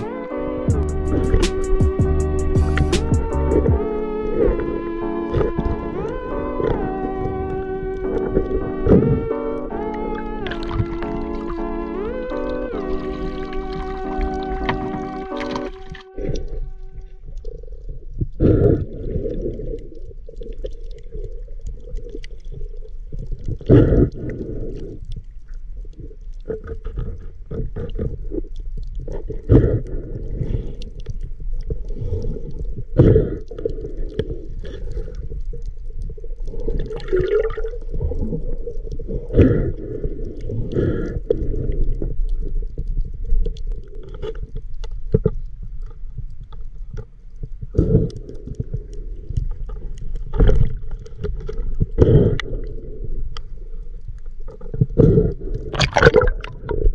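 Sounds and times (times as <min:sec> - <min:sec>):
underwater rush of water: 0:00.0 - 0:56.9
underwater whooshes: 0:03.1 - 0:16.7.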